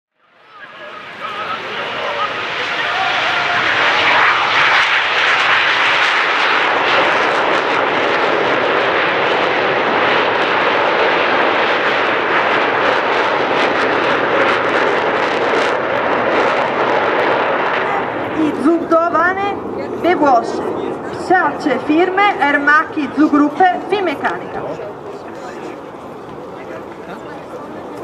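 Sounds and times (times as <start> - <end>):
jet aircraft flying past: 0.2 - 28.0.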